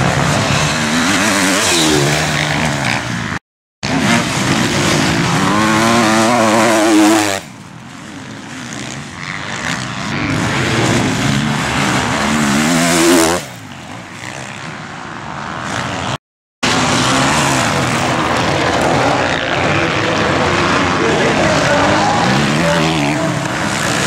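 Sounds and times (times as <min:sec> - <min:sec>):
motocross bike engines revving: 0:00.0 - 0:24.0.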